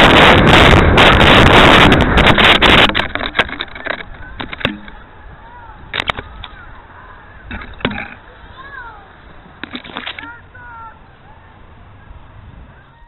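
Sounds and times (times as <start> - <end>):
wind rushing over microphone: 0.0 - 13.0
birds chirping: 4.0 - 13.0.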